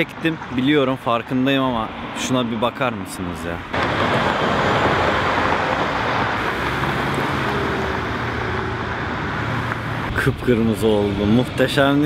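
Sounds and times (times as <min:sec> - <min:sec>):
road traffic rush: 0:00.0 - 0:12.0
vehicle engine hum: 0:03.3 - 0:12.0.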